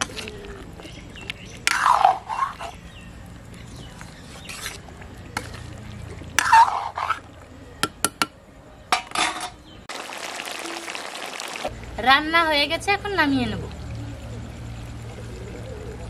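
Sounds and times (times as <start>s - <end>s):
metal spatula scraping curry: 3.7s - 4.8s
curry simmering hiss: 9.9s - 16.0s.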